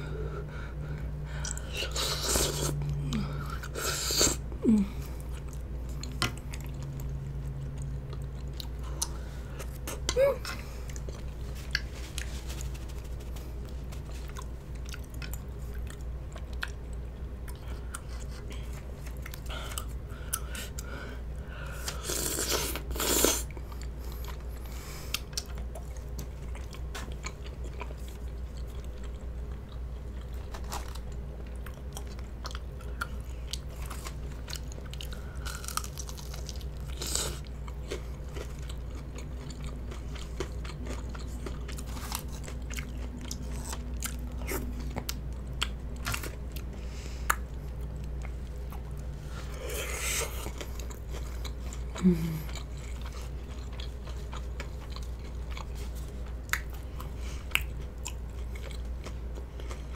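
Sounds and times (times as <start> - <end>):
person chewing food: 0.2 - 59.9.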